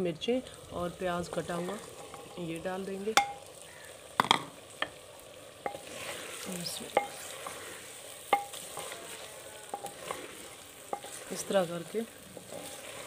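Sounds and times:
soft sizzle: 0.0s - 13.0s
wooden spoon stirring vegetables: 1.0s - 3.4s, 4.3s - 13.0s
spoon knocking clay pot: 3.2s - 3.4s, 4.2s - 4.6s, 8.3s - 9.0s.

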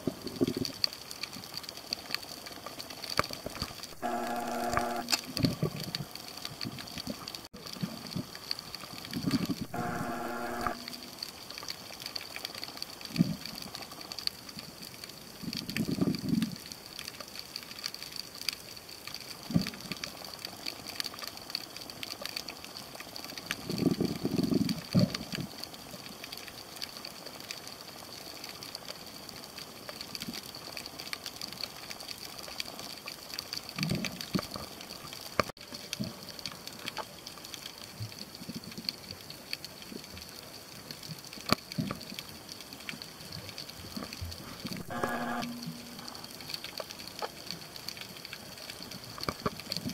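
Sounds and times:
faint crackling clicks underwater: 0.0s - 49.9s
steady high whine: 3.9s - 5.3s, 9.6s - 11.3s, 44.7s - 46.4s.

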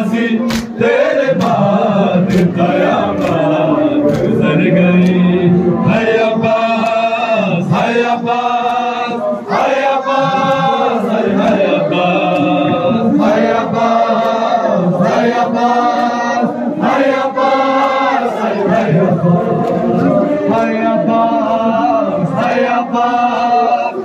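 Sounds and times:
crowd of men chanting: 0.0s - 24.0s
hands slapping chests: 0.5s - 1.6s, 2.2s - 3.5s, 4.1s - 4.4s.

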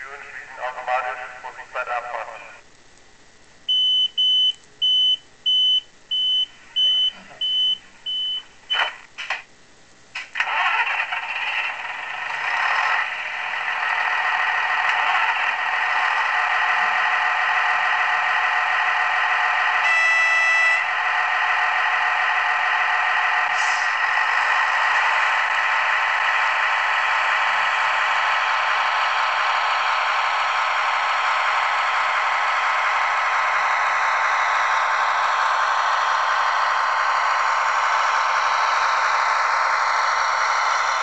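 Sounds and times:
model diesel engine running: 10.4s - 20.2s, 20.8s - 41.0s.

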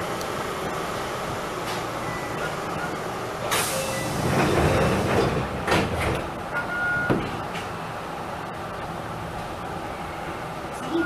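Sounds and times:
air hiss of train doors: 3.4s - 4.5s
sliding doors knocking shut: 3.5s - 6.3s
short beep: 3.7s - 4.2s, 6.6s - 7.2s.

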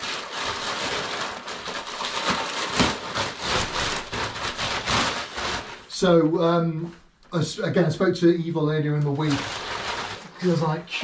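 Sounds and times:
packing paper crinkling: 0.0s - 6.2s, 8.8s - 11.0s.

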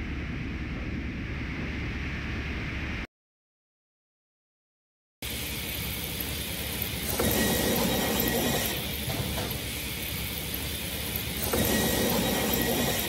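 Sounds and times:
edger machine running: 5.2s - 13.0s.

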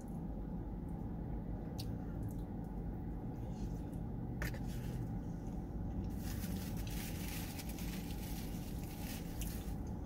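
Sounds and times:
steady low hum: 0.0s - 10.0s
chewing fries: 6.0s - 10.0s.

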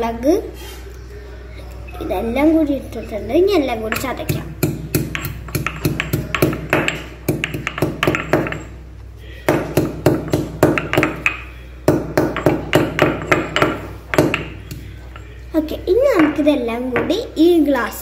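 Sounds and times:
stone pestle pounding in mortar: 3.9s - 8.7s, 9.5s - 14.9s.

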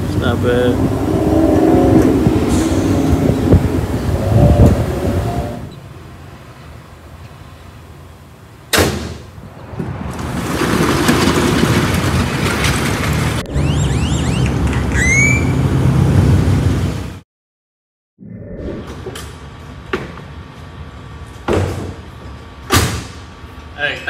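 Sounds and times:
car engine rumbling: 0.0s - 8.6s
car hood slamming shut: 8.7s - 9.2s
short high squeals: 13.7s - 15.7s.

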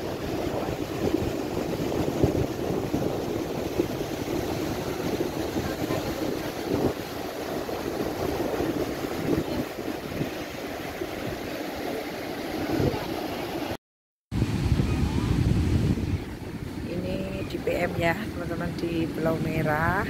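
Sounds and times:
surf washing onto beach: 0.0s - 13.8s, 14.4s - 20.0s
wind buffeting microphone: 0.0s - 13.8s, 14.4s - 20.0s.

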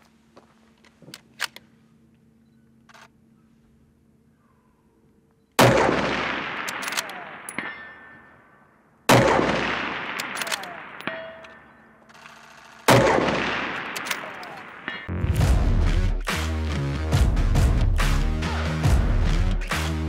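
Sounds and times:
rifle shots with echo: 5.6s - 11.9s, 12.9s - 15.1s.

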